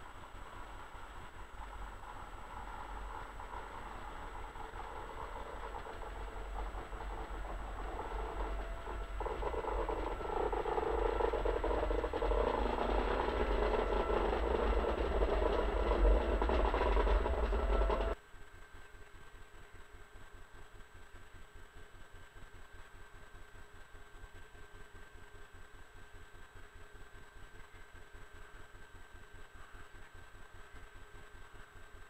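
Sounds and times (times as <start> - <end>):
electric locomotive passing: 0.0 - 18.2.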